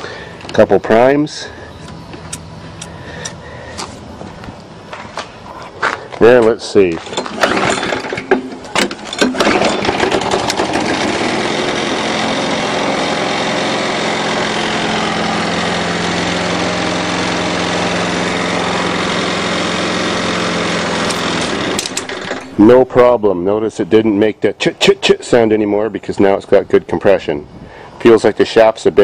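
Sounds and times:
lawn mower engine running: 0.0s - 23.9s
pull start strokes: 7.0s - 22.7s.

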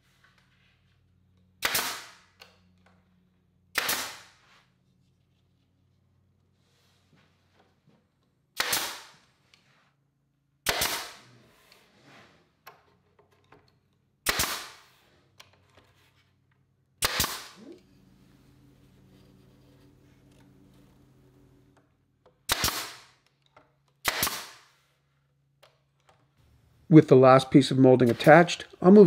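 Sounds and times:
pneumatic nailer firing: 1.6s - 2.4s, 3.7s - 4.4s, 8.6s - 9.3s, 10.6s - 11.3s, 14.2s - 15.0s, 17.0s - 17.7s, 22.4s - 23.2s, 24.0s - 24.7s.

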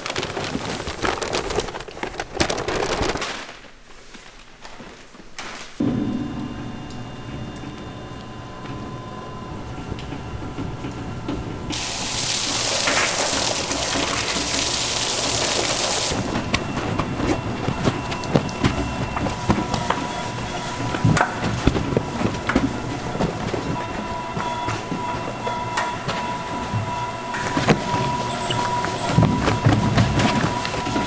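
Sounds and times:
mixer humming: 5.8s - 31.0s
loud hiss: 11.7s - 16.2s.

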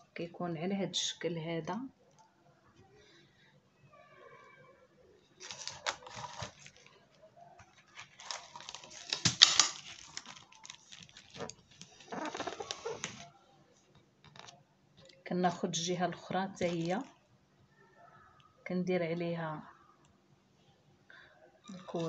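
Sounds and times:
hands rustling and scraping film: 5.4s - 13.3s, 16.5s - 17.1s, 21.7s - 22.0s.

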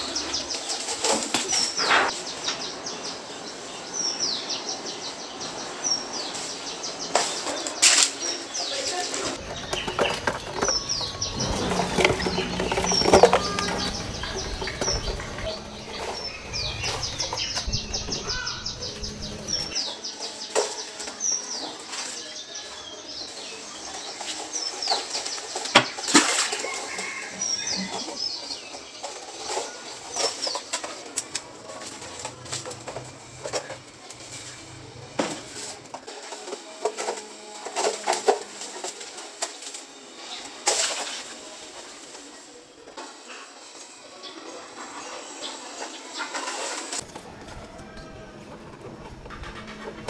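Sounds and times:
small birds chirping: 0.0s - 36.5s
rustling: 6.3s - 19.8s.

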